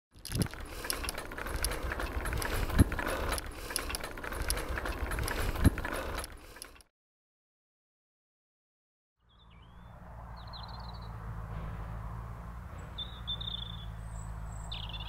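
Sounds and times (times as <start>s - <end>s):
bicycle rattling and clicking: 0.1s - 6.9s
road rumble: 0.1s - 6.9s, 9.2s - 15.0s.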